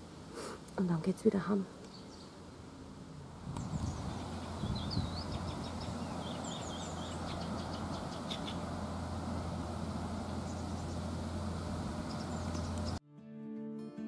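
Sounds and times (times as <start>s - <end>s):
songbirds chirping and trilling: 1.1s - 13.0s
barge engine drone: 2.6s - 13.0s.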